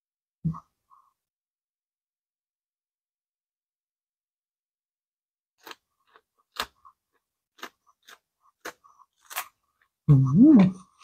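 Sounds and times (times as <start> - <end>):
crunching of raw vegetable being chewed: 5.6 - 10.0.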